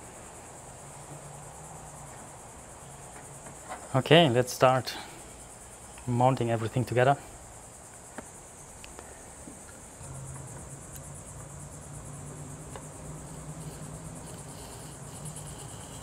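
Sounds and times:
cricket trilling: 0.0 - 16.0
low hum: 9.9 - 16.0.

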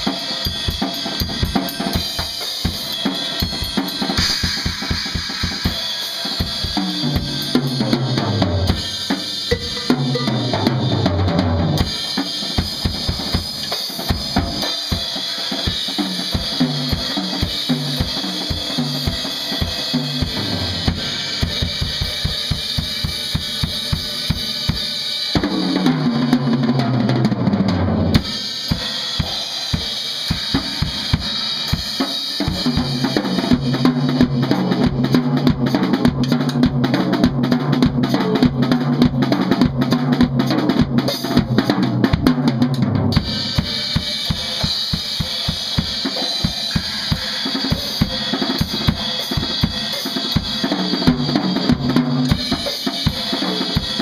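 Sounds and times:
cymbal wash: 0.0 - 11.0, 11.8 - 25.8, 43.2 - 54.0.

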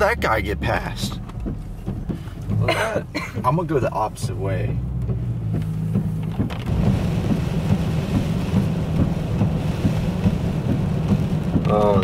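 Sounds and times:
car driving hum: 0.0 - 12.0
raindrops ticking: 0.0 - 12.0
heavy rain on a car: 3.4 - 12.0.

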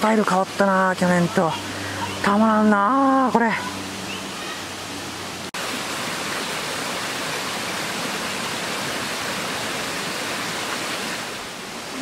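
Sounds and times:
running water rushing: 0.0 - 12.0.

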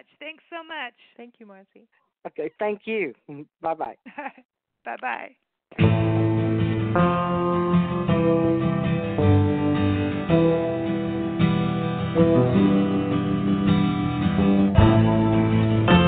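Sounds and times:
strummed acoustic guitar: 5.8 - 16.0.

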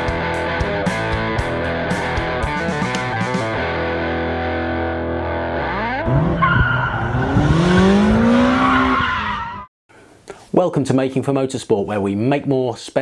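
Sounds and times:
electric guitar music: 0.0 - 6.4
car engine revving: 4.1 - 9.6.

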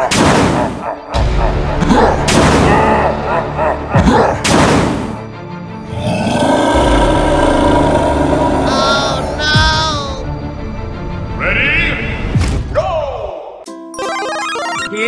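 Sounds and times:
steady synth music: 0.8 - 11.4, 13.7 - 15.0
low growl bending in pitch: 5.9 - 9.3.

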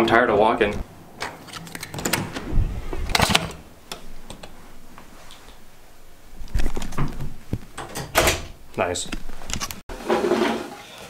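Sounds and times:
rustling: 0.7 - 8.0.

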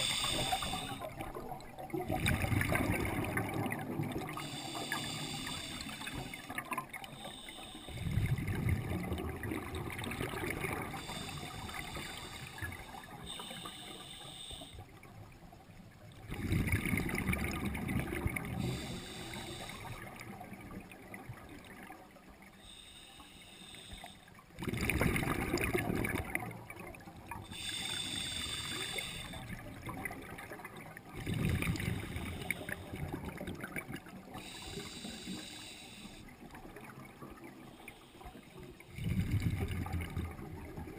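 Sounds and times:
regulator hissing on inhalation: 0.0 - 1.1, 4.4 - 6.5, 7.1 - 8.1, 10.9 - 14.8, 18.6 - 20.0, 22.7 - 24.3, 27.5 - 29.5, 34.4 - 36.3
exhaled bubbles rushing underwater: 0.0 - 13.8, 14.8 - 22.8, 24.3 - 40.9.

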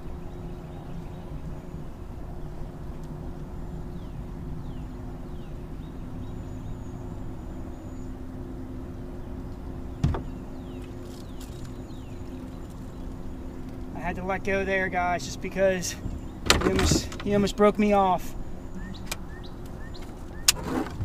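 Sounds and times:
low drone: 0.0 - 20.6
knock against boat: 10.0 - 10.3.

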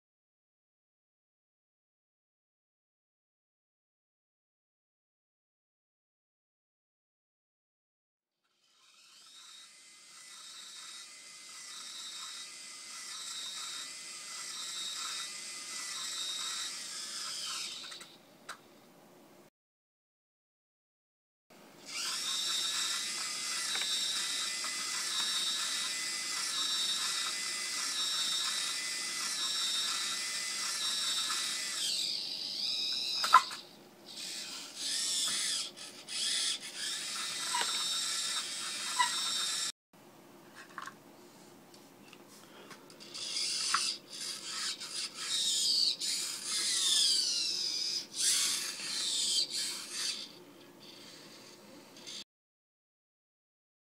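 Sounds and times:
small servo whining: 8.4 - 18.6, 21.8 - 39.8, 42.9 - 52.3.

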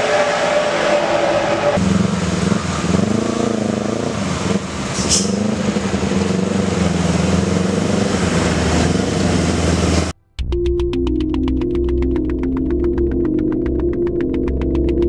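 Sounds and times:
motorcycle engines passing: 0.0 - 10.1
diesel truck engine passing: 0.0 - 10.2.

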